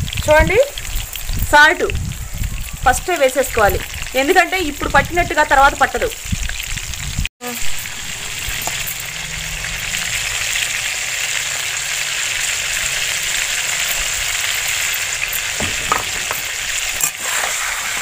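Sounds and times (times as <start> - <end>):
vegetables sizzling in hot oil: 0.0 - 18.0.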